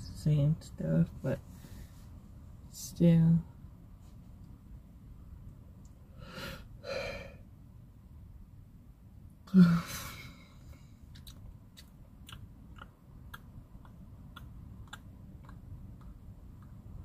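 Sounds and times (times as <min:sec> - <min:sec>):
faint steady ticking: 0:10.6 - 0:17.0.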